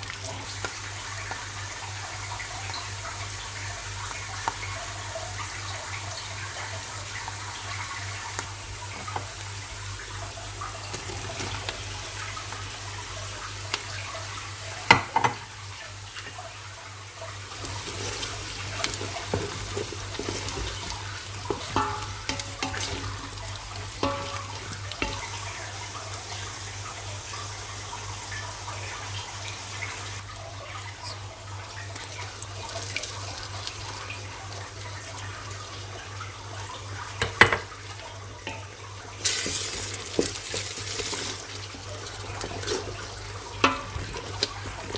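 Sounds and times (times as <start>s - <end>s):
tap water running into sink: 7.1s - 16.5s, 17.5s - 27.1s, 36.6s - 44.9s
dishes and utensils clinking: 21.5s - 23.3s, 24.0s - 25.3s.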